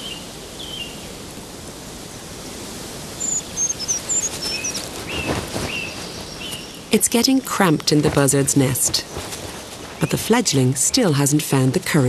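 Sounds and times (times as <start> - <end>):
small birds chirping: 0.0 - 1.1, 3.1 - 11.4
rustle: 0.0 - 12.0
steady background hiss: 0.0 - 12.0.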